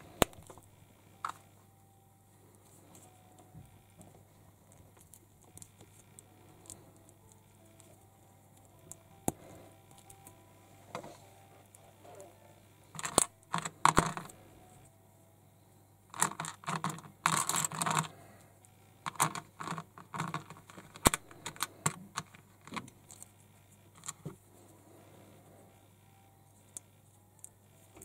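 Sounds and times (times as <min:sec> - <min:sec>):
plastic toy parts clicking: 0:13.0 - 0:14.4, 0:16.1 - 0:18.2, 0:19.0 - 0:23.3.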